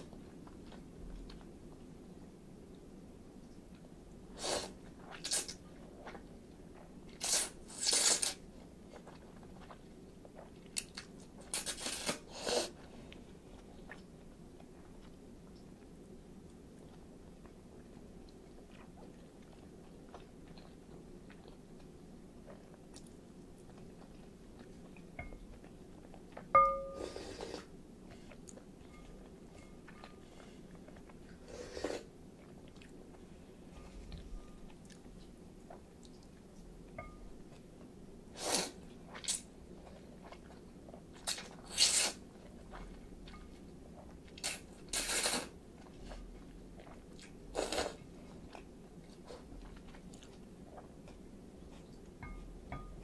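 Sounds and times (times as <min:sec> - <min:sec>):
soft chewing: 0:00.0 - 0:53.0
slurping noodles: 0:31.4 - 0:32.1, 0:38.4 - 0:38.8, 0:44.4 - 0:45.5.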